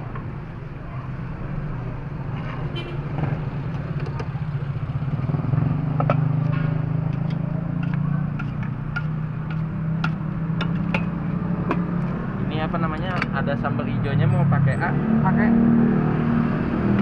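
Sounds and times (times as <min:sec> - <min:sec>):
vehicle engine running: 0:03.4 - 0:13.9
utensils clinking on metal pot: 0:07.1 - 0:11.8.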